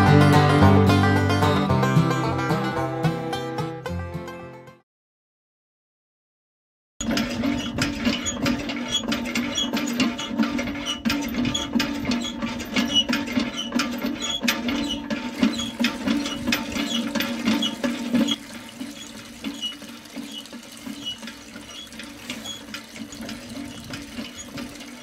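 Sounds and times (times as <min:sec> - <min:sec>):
pump handle clicking and squeaking: 0:07.0 - 0:25.0
water splashing: 0:15.1 - 0:25.0.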